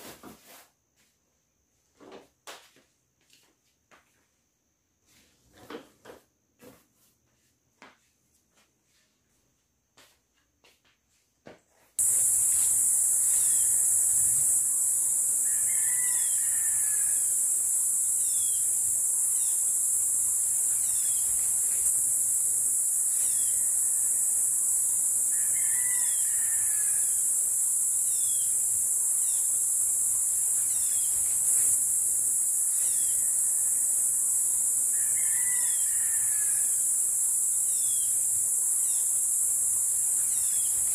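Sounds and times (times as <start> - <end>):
insects chorus: 12.0 - 40.9.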